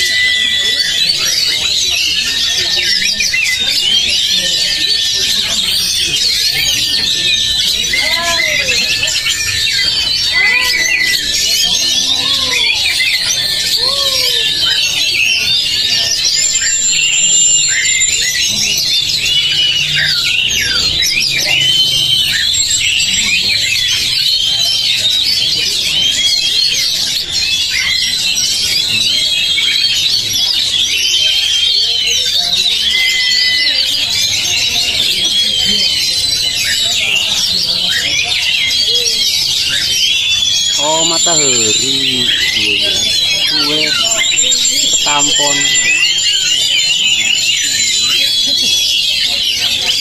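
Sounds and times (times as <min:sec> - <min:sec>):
magpie-robins singing in chorus: 0:00.0 - 0:50.0
lower rising and falling calls: 0:32.7 - 0:50.0.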